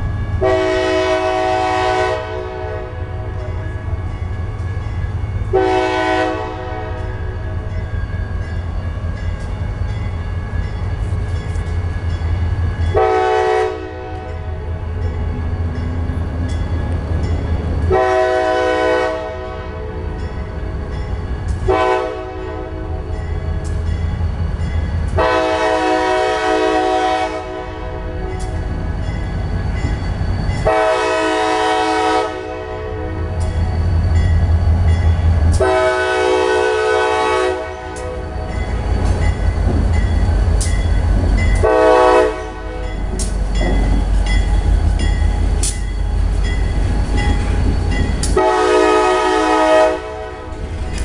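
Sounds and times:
locomotive air horn blasts: 0:00.4 - 0:03.4, 0:05.5 - 0:07.1, 0:13.0 - 0:14.6, 0:17.9 - 0:20.0, 0:21.6 - 0:23.1, 0:25.2 - 0:28.3, 0:30.6 - 0:33.4, 0:35.6 - 0:38.4, 0:41.6 - 0:42.9, 0:48.3 - 0:50.6.

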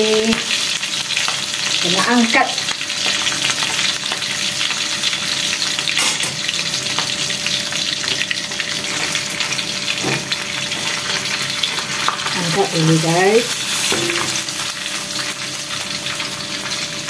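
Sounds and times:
fish sizzling in hot oil: 0:00.0 - 0:17.0
metal spatula scraping wok: 0:13.6 - 0:14.6.

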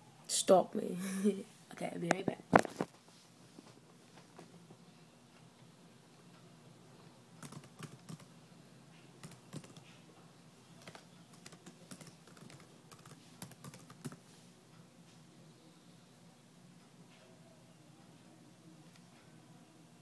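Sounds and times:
faint keyboard typing: 0:07.4 - 0:08.3, 0:08.9 - 0:10.0, 0:10.7 - 0:14.3.

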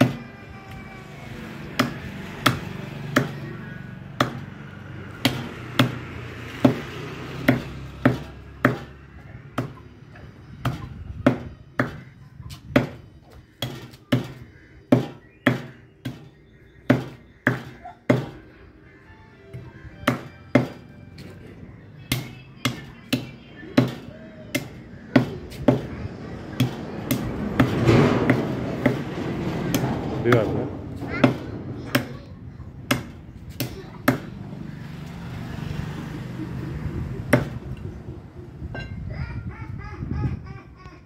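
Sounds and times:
cleaver chopping on wooden block: 0:06.6 - 0:08.9, 0:10.6 - 0:12.1, 0:12.7 - 0:13.0, 0:13.6 - 0:18.4, 0:20.0 - 0:20.8, 0:22.1 - 0:25.9, 0:26.6 - 0:29.0, 0:37.3 - 0:37.6.

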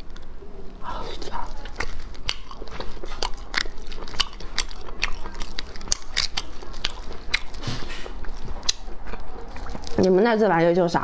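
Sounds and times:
close chewing: 0:00.9 - 0:10.7
snail shells clicking and cracking: 0:01.3 - 0:07.6.

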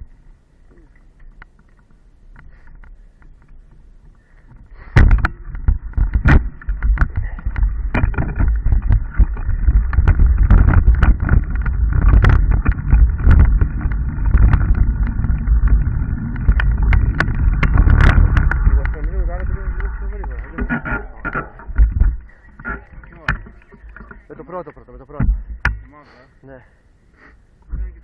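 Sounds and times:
wheels knocking on rocks: 0:02.6 - 0:26.0
mountain bike rumbling on trail: 0:04.6 - 0:25.7.

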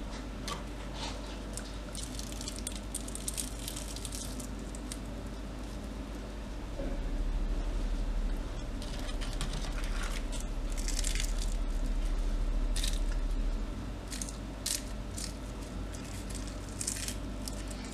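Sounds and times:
low hum: 0:00.0 - 0:17.9
crispy potato sticks crunching: 0:01.6 - 0:05.1, 0:08.8 - 0:12.0, 0:12.7 - 0:13.2, 0:14.0 - 0:17.9.

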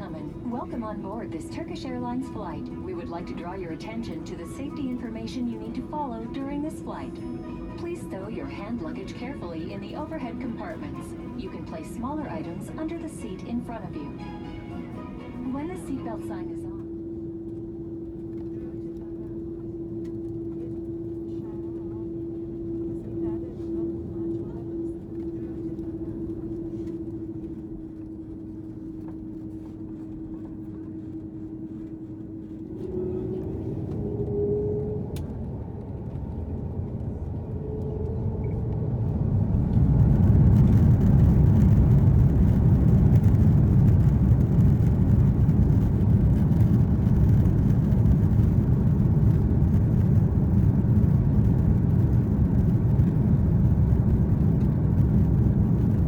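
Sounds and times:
takeoff roll noise: 0:00.0 - 0:18.4, 0:32.6 - 0:56.0
jet engines humming with whine: 0:00.0 - 0:56.0.

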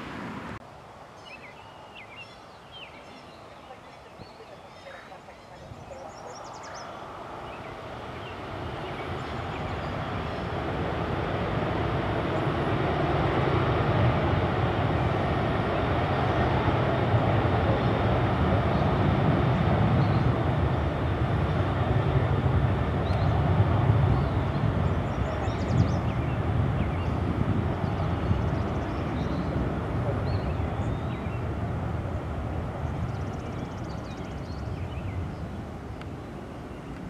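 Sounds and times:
jet engines rumbling: 0:00.0 - 0:01.2, 0:02.9 - 0:37.0.

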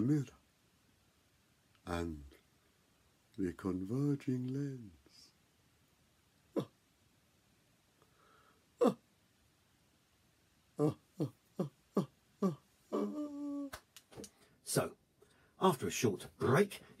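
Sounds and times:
person making vocal sounds: 0:06.5 - 0:06.8, 0:08.8 - 0:09.0, 0:10.8 - 0:13.8.

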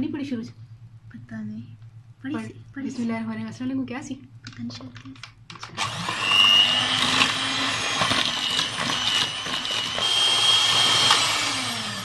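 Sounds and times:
electric hand mixer whining: 0:05.8 - 0:12.0.

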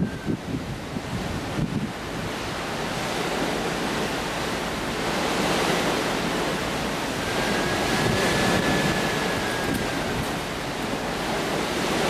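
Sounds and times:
thin high whistle: 0:00.0 - 0:00.4, 0:07.2 - 0:10.2
sea water rushing: 0:00.0 - 0:12.0
wind: 0:00.0 - 0:12.0
wind buffeting microphone: 0:00.0 - 0:12.0.

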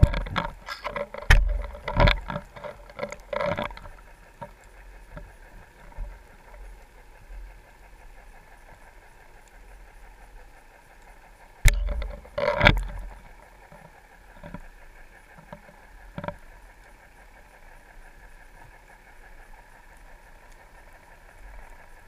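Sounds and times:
underwater hum: 0:00.0 - 0:22.0
fish knocking camera housing: 0:11.7 - 0:13.0.

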